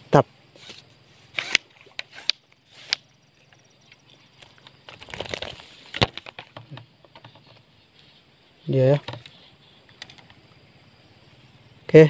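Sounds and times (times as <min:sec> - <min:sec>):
rustling: 0:04.1 - 0:10.5
fish flapping and thrashing: 0:04.4 - 0:07.7.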